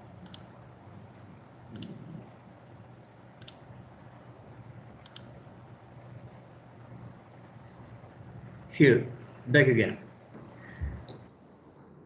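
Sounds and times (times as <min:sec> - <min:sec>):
faint room hum: 0:00.0 - 0:12.0
computer mouse double-clicks: 0:00.2 - 0:00.5, 0:01.7 - 0:02.2, 0:05.0 - 0:05.3.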